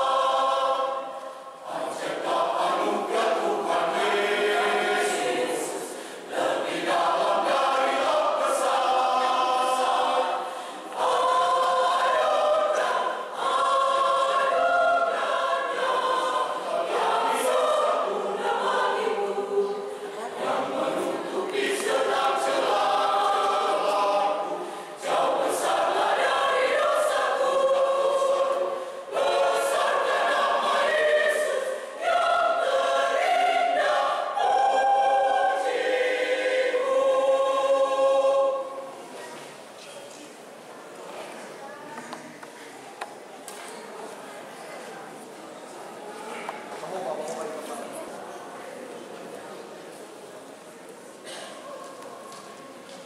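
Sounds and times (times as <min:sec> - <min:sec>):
mixed choir singing: 0:00.0 - 0:39.2.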